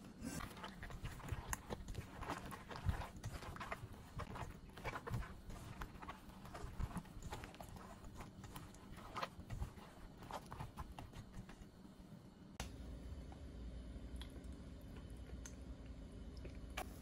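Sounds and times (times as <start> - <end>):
battered eggplant squelching in bowl: 0.1 - 11.8.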